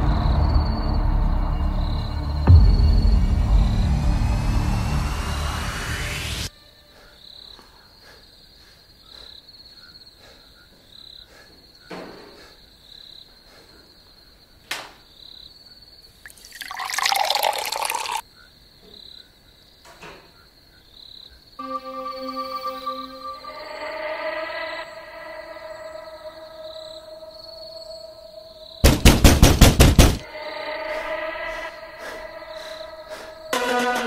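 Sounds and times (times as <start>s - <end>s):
crickets chirping: 0.0s - 4.4s, 6.5s - 33.8s
water poured into glass: 16.3s - 18.2s.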